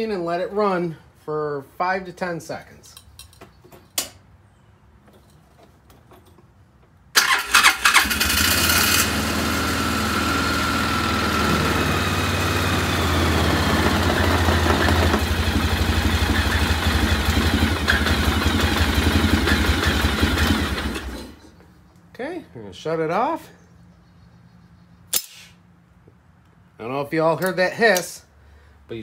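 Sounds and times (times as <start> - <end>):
engine cranking and idling: 7.2 - 21.4.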